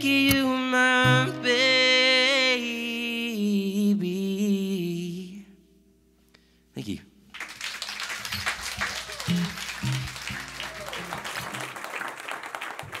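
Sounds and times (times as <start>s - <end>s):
audience applauding: 7.3s - 13.0s
cheers and whoops: 8.1s - 13.0s.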